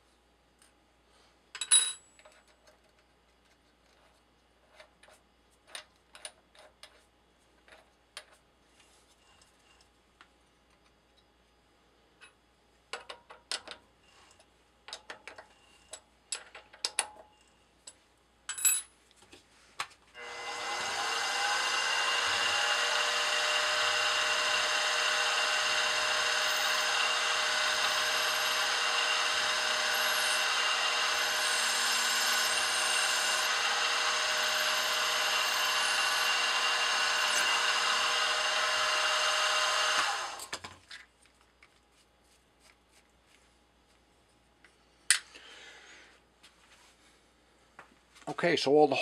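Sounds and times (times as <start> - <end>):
drill boring into brass: 20.2 - 40.5
milling machine motor running: 20.2 - 40.5.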